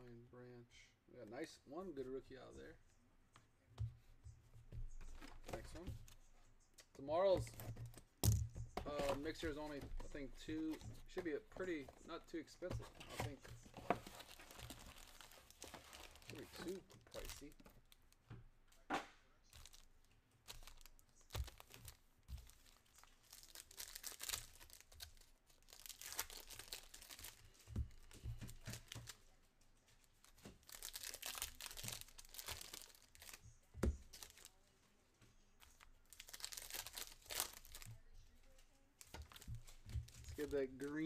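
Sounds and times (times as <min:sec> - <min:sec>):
foil wrappers crinkling: 0:08.8 - 0:18.2, 0:19.5 - 0:29.2, 0:30.0 - 0:33.4, 0:34.0 - 0:34.6, 0:35.6 - 0:37.9, 0:39.0 - 0:41.0.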